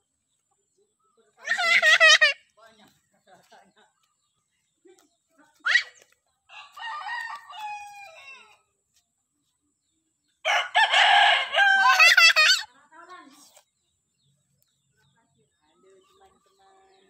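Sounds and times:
rooster crowing: 0:06.5 - 0:08.5, 0:10.5 - 0:12.2.

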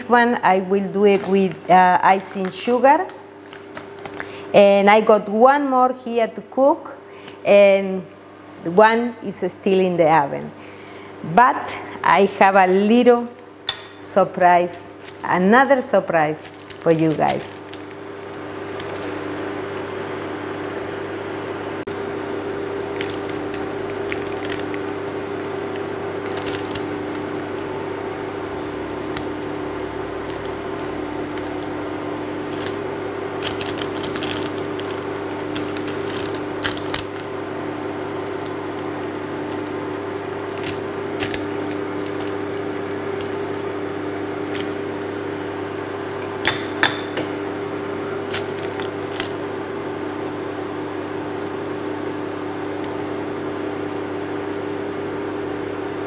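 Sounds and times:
appliance hum: 0:00.0 - 0:56.0
metal sieve tapping: 0:13.7 - 0:14.1.

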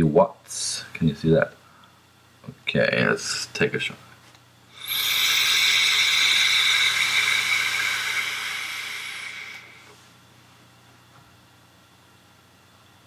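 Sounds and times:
air hissing through vape: 0:04.7 - 0:10.0.

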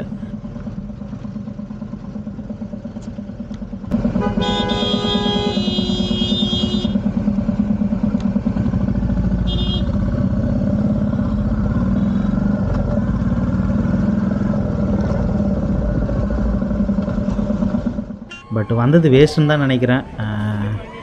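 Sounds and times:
motorcycle engine thumping: 0:00.4 - 0:10.2, 0:14.6 - 0:18.3.

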